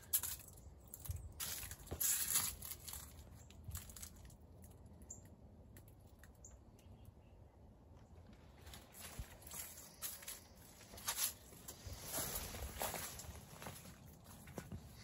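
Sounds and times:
leaves rustling and crinkling: 0.0s - 5.1s, 8.0s - 15.0s.

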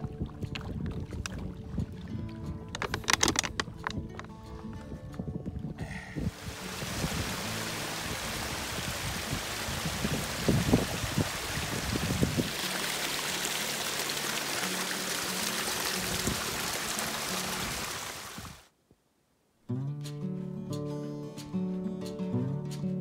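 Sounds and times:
creek splashing over rocks: 0.0s - 4.2s, 6.3s - 18.7s.

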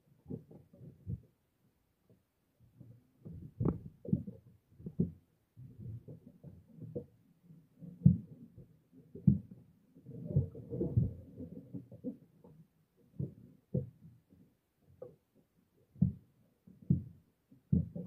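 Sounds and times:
muffled thumps on microphone: 0.2s - 1.3s, 2.8s - 7.2s, 7.8s - 12.2s, 13.1s - 15.2s, 15.9s - 18.0s.

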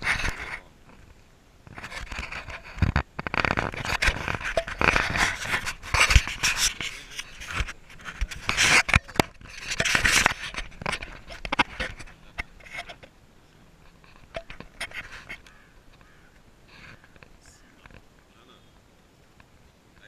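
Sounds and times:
fingers rubbing camera housing: 1.7s - 13.1s, 13.9s - 18.0s.

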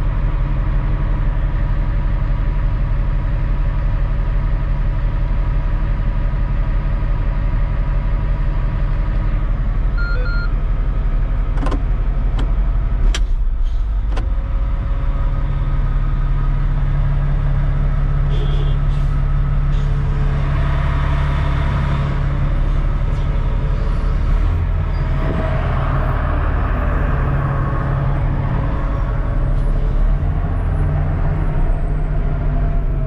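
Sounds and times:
diesel engine idling: 0.0s - 33.0s
short electronic beep: 10.0s - 10.6s
sharp clicks of cab controls: 11.5s - 13.4s.

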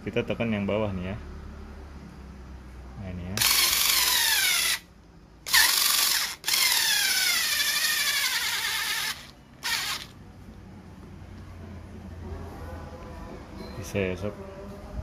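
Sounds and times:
electric screwdriver whining: 3.4s - 4.8s, 5.5s - 10.1s.

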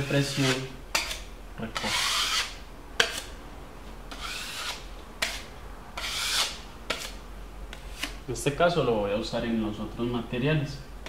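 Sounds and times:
putty knife scraping a wall: 0.0s - 3.3s, 4.1s - 8.2s.

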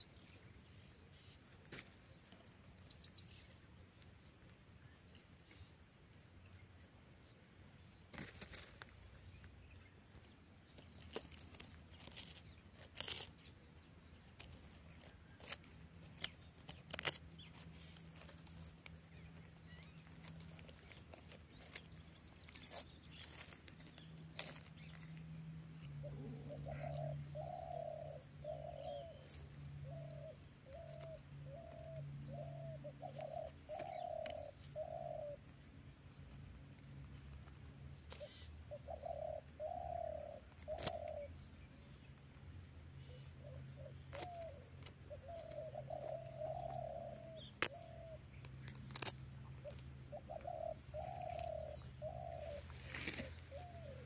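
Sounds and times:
bird cooing: 26.0s - 35.4s, 38.1s - 41.3s, 43.1s - 54.0s.

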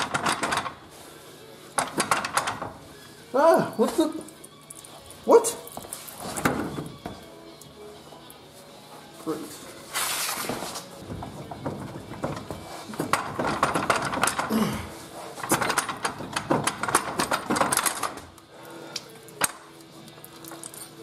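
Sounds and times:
metal clunks and knocks: 0.0s - 0.8s, 1.7s - 2.8s, 6.3s - 7.3s, 10.5s - 14.5s, 15.4s - 18.3s.

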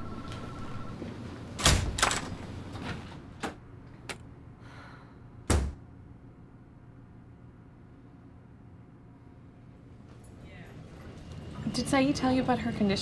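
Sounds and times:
door thumping shut: 5.5s - 5.8s.

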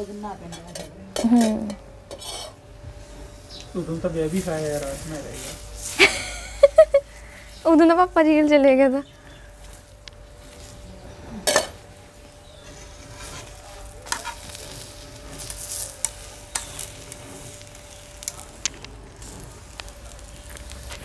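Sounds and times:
metal spatula scraping and tapping: 0.5s - 2.6s, 12.6s - 16.9s
flatbread sizzling on a pan: 1.2s - 21.0s.

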